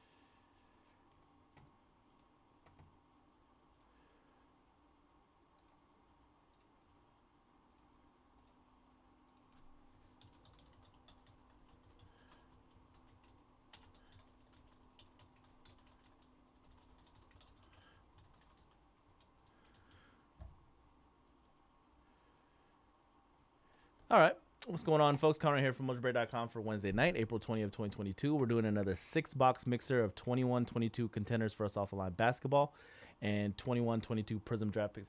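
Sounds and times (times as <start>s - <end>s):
computer keyboard typing: 1.1s - 3.0s, 9.3s - 20.1s.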